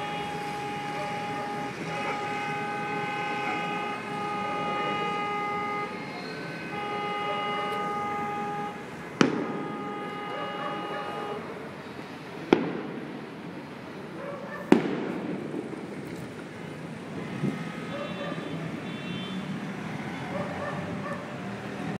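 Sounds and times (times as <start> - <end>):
vehicle horn blasts: 0.0 - 11.7, 17.3 - 19.6
street traffic noise: 0.0 - 21.9.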